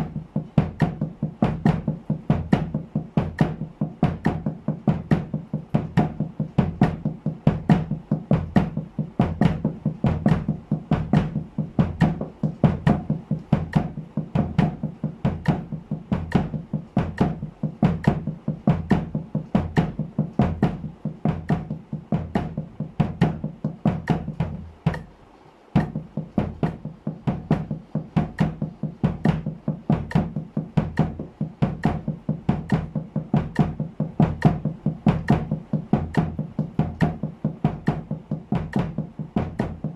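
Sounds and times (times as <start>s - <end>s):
kick drum strokes: 0.0s - 39.9s
sticks on muffled snare drum: 0.0s - 39.9s.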